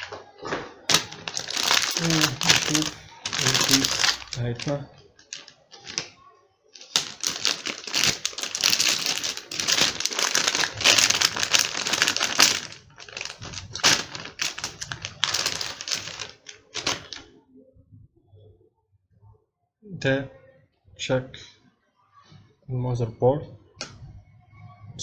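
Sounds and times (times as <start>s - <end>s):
plastic bag crinkling: 0.0s - 17.3s.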